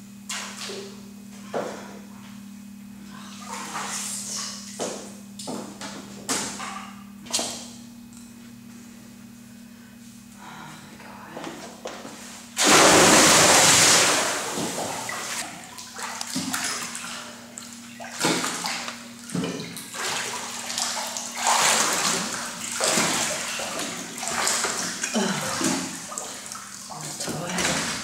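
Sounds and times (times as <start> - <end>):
water sloshing and splashing: 3.2 - 5.5, 12.6 - 28.0
person jumping into pool splash: 12.6 - 26.8.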